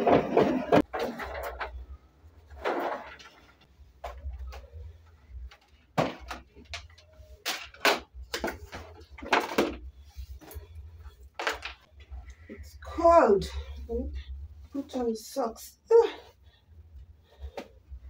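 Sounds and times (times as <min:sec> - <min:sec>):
low steady hum: 0:00.1 - 0:18.0.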